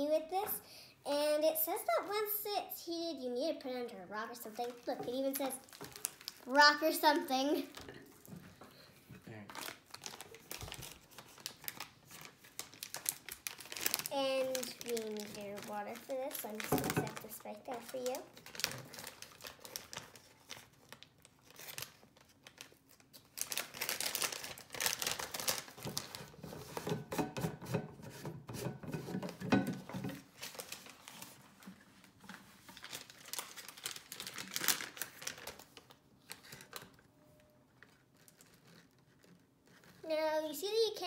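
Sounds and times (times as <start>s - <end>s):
plastic bag crinkling: 4.3s - 8.3s, 9.4s - 26.9s, 29.8s - 40.1s.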